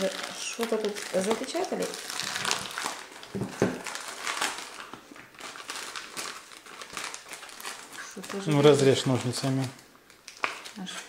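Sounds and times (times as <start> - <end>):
packet crinkling: 0.0 - 11.0.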